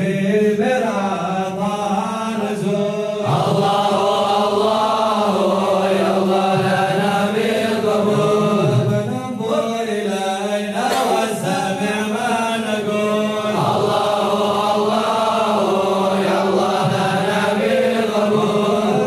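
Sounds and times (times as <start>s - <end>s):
men chanting in unison: 0.0s - 19.0s.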